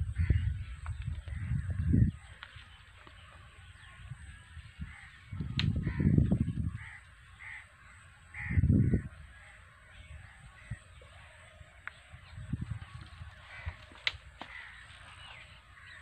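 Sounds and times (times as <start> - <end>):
low rumbles on microphone: 0.0 - 2.3, 4.0 - 7.0, 8.4 - 9.2
crows cawing: 0.1 - 12.0, 12.9 - 16.0.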